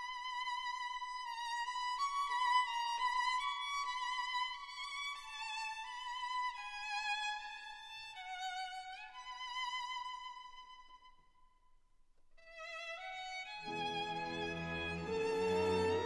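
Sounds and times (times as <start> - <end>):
slow melody with vibrato: 13.7 - 16.0.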